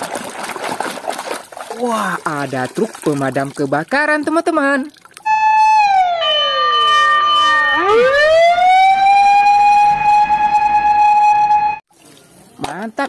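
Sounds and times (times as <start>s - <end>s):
fire engine siren wailing: 5.3s - 11.8s.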